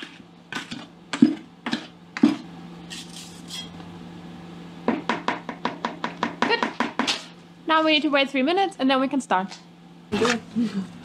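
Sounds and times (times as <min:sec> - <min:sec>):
mixing tool stirring grout: 0:00.0 - 0:02.4.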